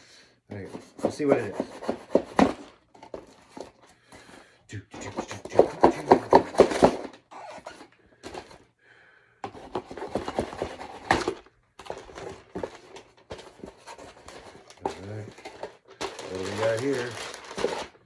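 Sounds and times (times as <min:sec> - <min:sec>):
cardboard box being opened: 0:09.6 - 0:18.0.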